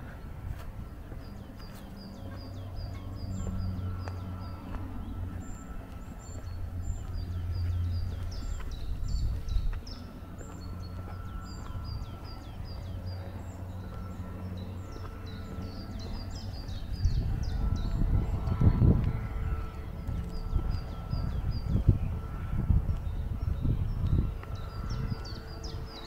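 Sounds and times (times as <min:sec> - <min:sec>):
low outdoor rumble: 0:00.0 - 0:26.0
small birds chirping: 0:00.0 - 0:26.0.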